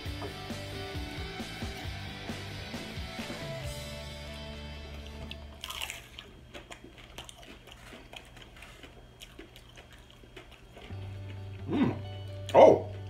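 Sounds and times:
person chewing crunchy food: 4.6 - 13.0.

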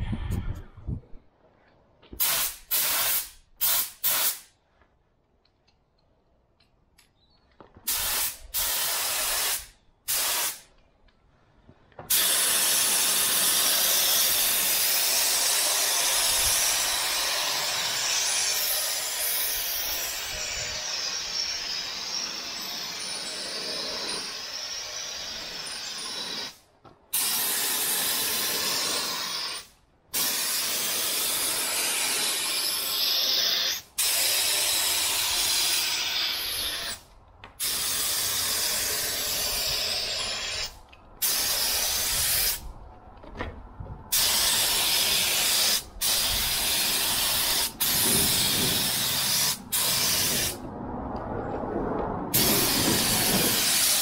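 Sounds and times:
spray gun hissing: 2.2 - 4.5, 7.9 - 10.6, 12.1 - 22.5, 24.3 - 37.0, 37.6 - 42.6, 44.1 - 50.6, 52.3 - 54.0.

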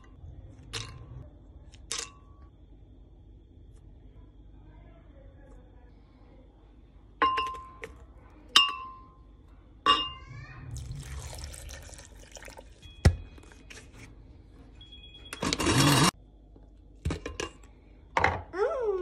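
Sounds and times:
milk pouring: 10.7 - 13.8.

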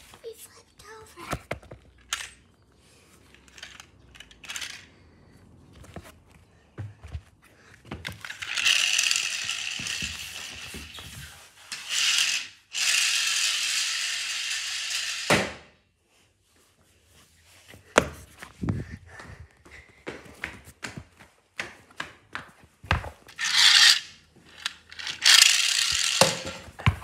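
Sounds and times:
toy car gears whirring: 2.0 - 2.4, 3.4 - 5.0, 8.1 - 15.3, 23.2 - 26.7.

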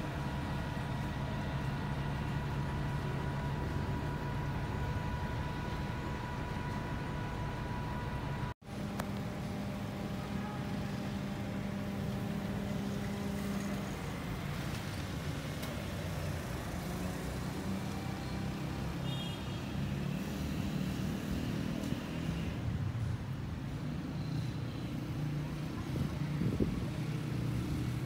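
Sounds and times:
road traffic rumble: 0.0 - 28.0
vehicle engine drone: 0.0 - 28.0.

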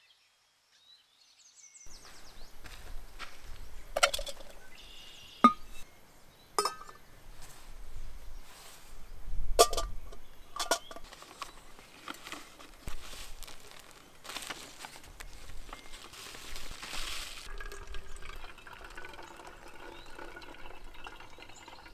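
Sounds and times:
cups clinking on wooden table: 3.9 - 4.7, 5.4 - 5.8, 6.6 - 7.0, 9.6 - 11.1
paper and plastic bag rustling: 11.0 - 17.5.

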